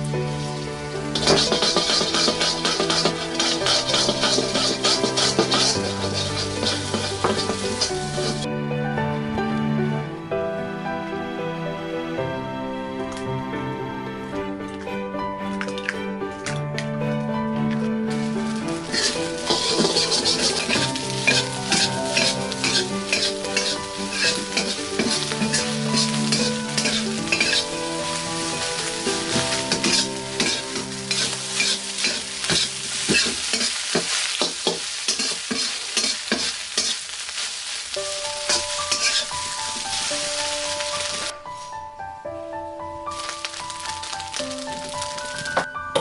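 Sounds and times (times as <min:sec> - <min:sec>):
rice sizzling: 0:00.0 - 0:08.5, 0:14.8 - 0:16.6, 0:17.6 - 0:41.8, 0:42.8 - 0:46.0
metal ladle scraping a wok: 0:00.3 - 0:08.5, 0:18.1 - 0:41.3.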